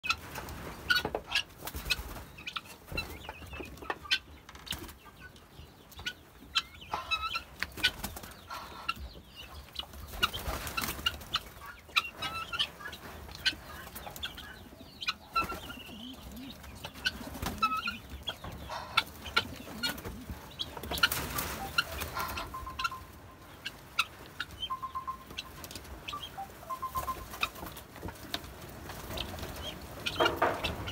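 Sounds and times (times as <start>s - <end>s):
guineafowl calling: 6.0s - 28.2s, 29.0s - 30.9s.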